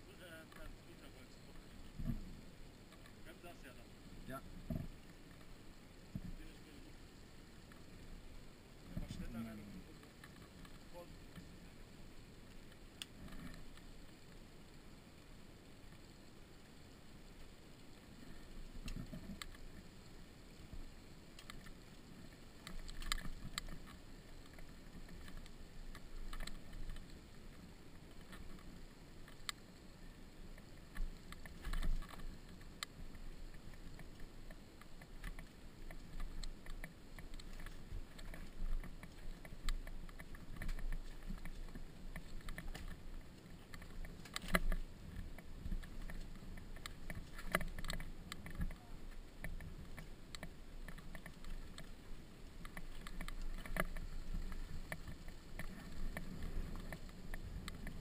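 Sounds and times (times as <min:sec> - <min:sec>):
knocks and rattles over stones: 0:21.3 - 0:29.5, 0:30.5 - 0:58.0.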